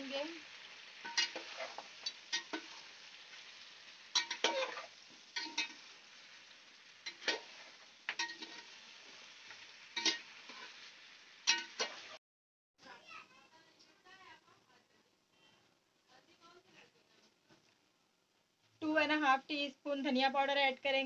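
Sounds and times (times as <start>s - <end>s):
meat sizzling in oil: 0.0s - 12.2s
metal spoon scraping a pot: 1.0s - 2.8s, 4.2s - 5.8s, 7.0s - 8.8s, 10.0s - 10.8s.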